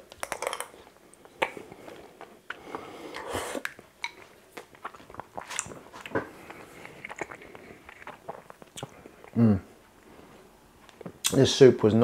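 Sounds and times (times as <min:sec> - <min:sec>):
chewing: 0:00.1 - 0:09.4
person slurping soup: 0:01.6 - 0:03.7.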